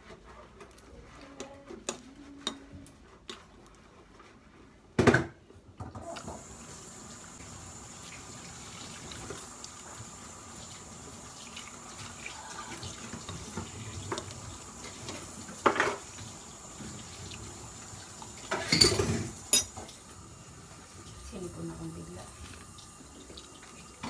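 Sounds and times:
tap water running into sink: 5.9s - 24.0s.

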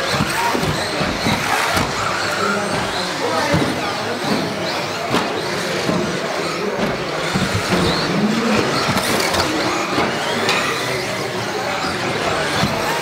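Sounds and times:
electric motors whining: 0.0s - 13.0s
toy cars landing with clicks: 4.9s - 11.2s.

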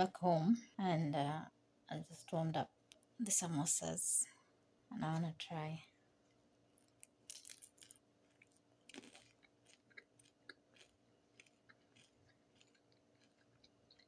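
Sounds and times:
chewing and crunching pastry: 6.8s - 14.0s.

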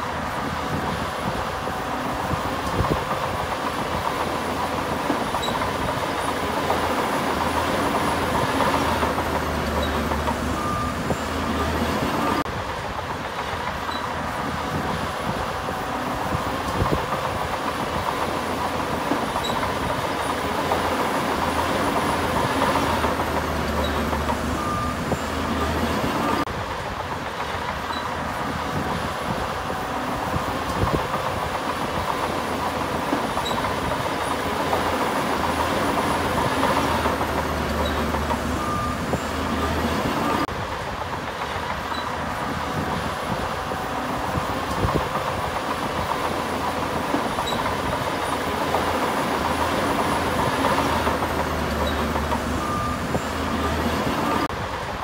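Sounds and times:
heavy machinery diesel engine: 0.0s - 55.0s.

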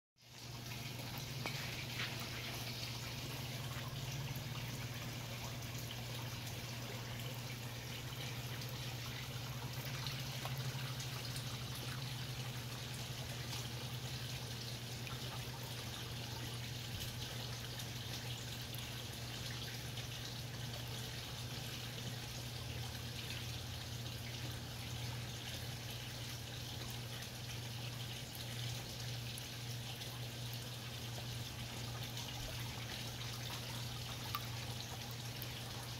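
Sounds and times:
fish slurping and splashing: 0.5s - 17.2s.

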